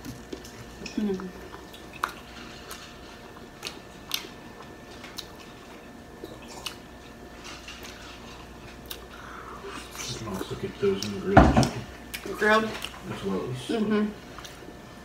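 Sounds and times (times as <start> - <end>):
person chewing: 0.0 - 11.2, 14.2 - 14.8.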